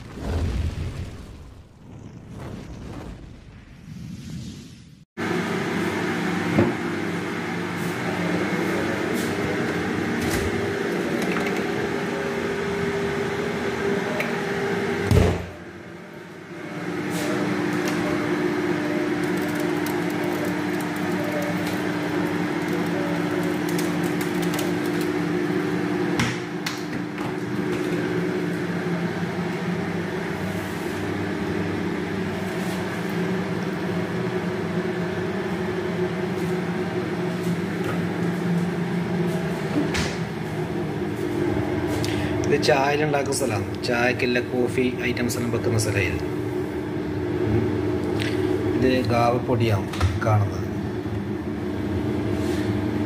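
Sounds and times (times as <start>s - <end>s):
machine hum: 5.2s - 53.0s.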